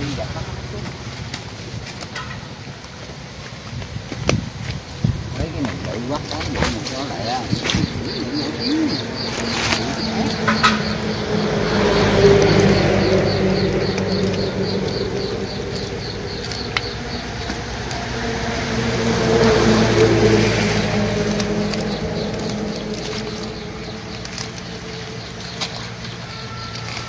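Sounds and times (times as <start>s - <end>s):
motor engine running: 5.4s - 27.0s.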